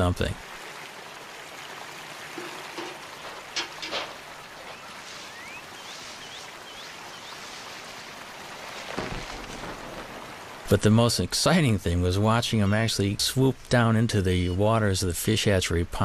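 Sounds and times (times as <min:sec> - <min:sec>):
running water hiss: 0:00.0 - 0:15.7
bird chirping: 0:04.6 - 0:07.6
dull thump: 0:08.9 - 0:10.1.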